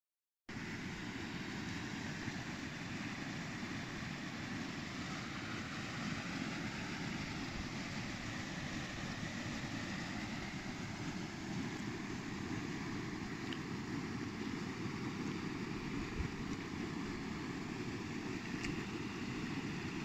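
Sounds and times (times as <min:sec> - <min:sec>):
wind rumble on microphone: 0:15.8 - 0:17.2.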